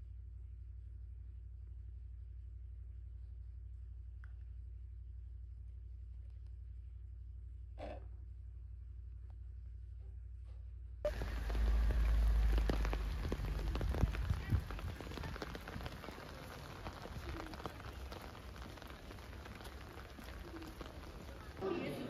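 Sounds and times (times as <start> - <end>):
low rumble: 10.8 - 20.6
rain on wet paving: 11.1 - 22.0.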